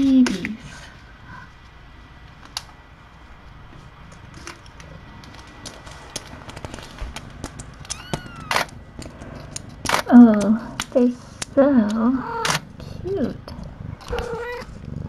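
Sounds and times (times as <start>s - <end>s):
small sharp clicks and ticks: 2.4s - 2.7s, 4.1s - 14.8s.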